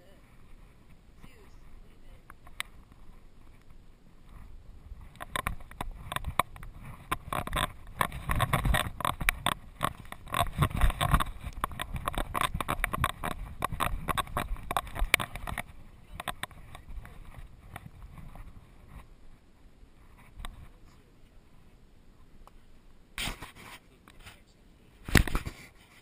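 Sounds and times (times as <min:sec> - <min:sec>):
camera clattering in mount: 0:25.1 - 0:25.6.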